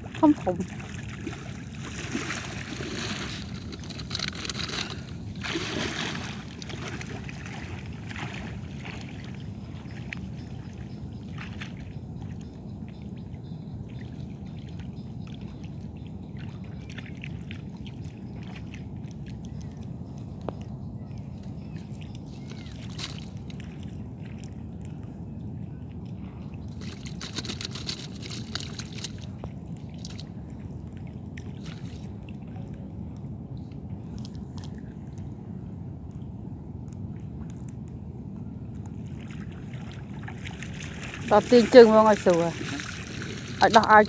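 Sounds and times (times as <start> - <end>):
seawater sloshing and splashing: 0.0 - 12.5, 13.9 - 20.0, 21.7 - 25.1, 26.1 - 32.8, 38.8 - 44.0.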